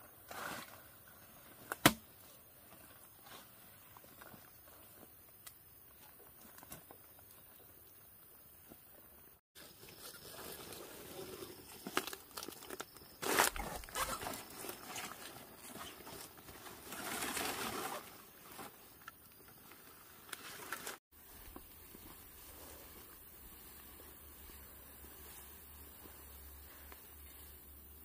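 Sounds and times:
leaves rustling and crackling: 0:09.6 - 0:28.0.

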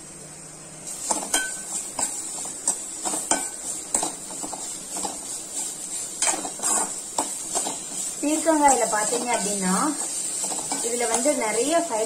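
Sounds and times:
oil sizzling: 0:00.0 - 0:12.0
metal spoon scraping a pan: 0:00.9 - 0:12.0.

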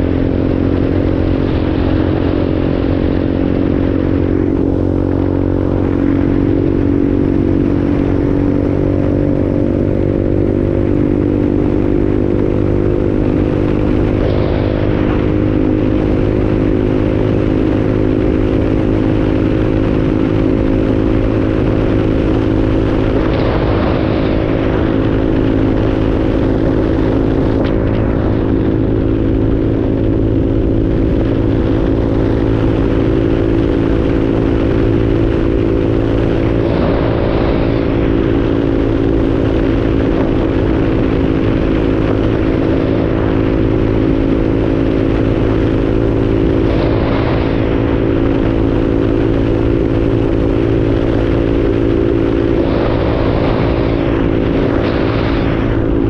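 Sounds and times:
motorcycle engine cruising: 0:00.0 - 0:56.0
road and wind noise: 0:00.0 - 0:56.0
vehicle passing: 0:35.1 - 0:39.3, 0:51.2 - 0:56.0.

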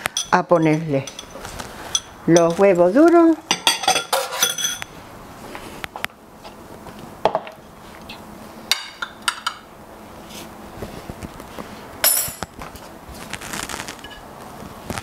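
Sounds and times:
knife and dishes clinking: 0:00.0 - 0:02.7, 0:03.5 - 0:04.9.

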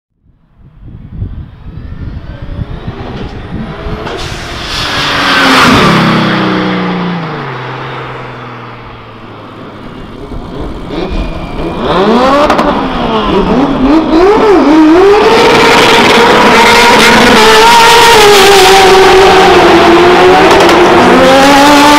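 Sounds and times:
engines revving: 0:01.7 - 0:21.9
car accelerating past: 0:02.6 - 0:09.2.

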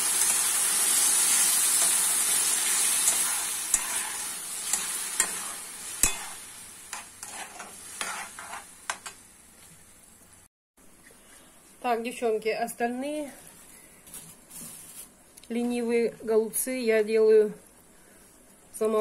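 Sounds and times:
vegetables sizzling in oil: 0:00.0 - 0:09.9
spoon scraping a pan: 0:01.7 - 0:09.2.

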